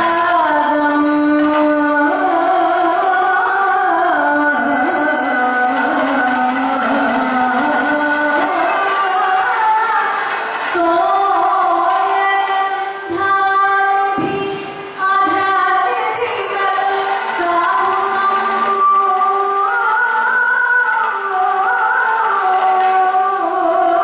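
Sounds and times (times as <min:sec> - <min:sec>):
high metallic ringing: 0:04.5 - 0:10.8, 0:15.7 - 0:21.4.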